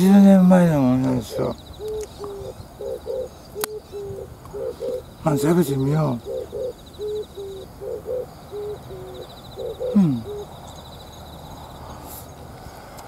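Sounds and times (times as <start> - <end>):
dove cooing: 0.9 - 10.6.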